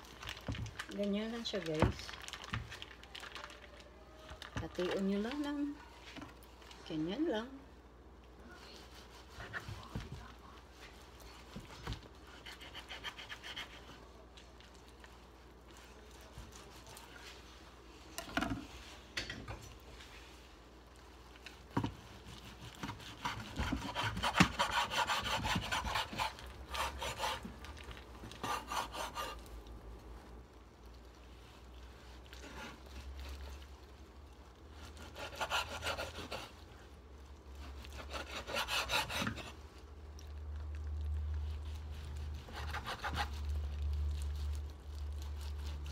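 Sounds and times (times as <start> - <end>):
knife sawing through bacon: 12.2 - 14.0, 22.2 - 27.7, 28.3 - 29.5, 34.7 - 36.6, 37.5 - 39.6, 41.4 - 45.9.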